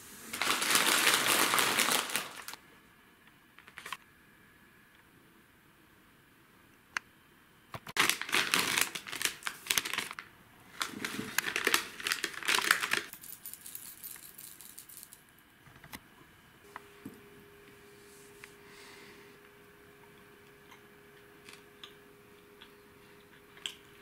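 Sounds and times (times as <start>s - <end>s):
plastic packaging crinkling: 0.3s - 2.6s, 3.6s - 4.0s, 8.0s - 15.1s.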